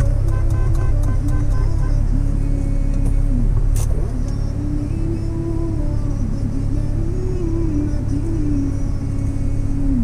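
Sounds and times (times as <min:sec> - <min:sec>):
car cabin rumble: 0:00.0 - 0:10.0
slow background music: 0:00.0 - 0:10.0.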